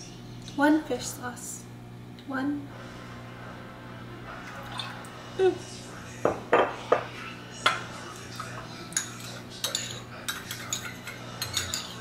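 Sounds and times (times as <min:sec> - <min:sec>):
metal spoon clinking ceramic bowl: 0:08.9 - 0:12.0.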